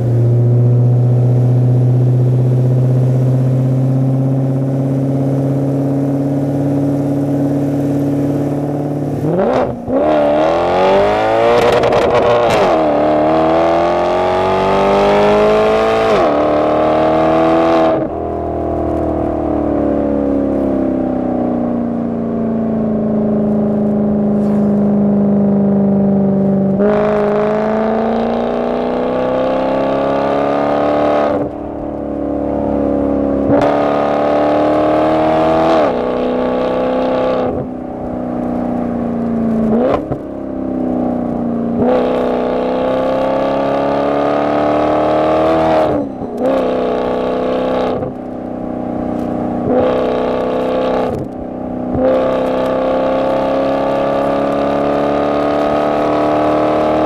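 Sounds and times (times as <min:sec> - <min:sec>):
car engine accelerating hard: 0:00.0 - 0:57.0.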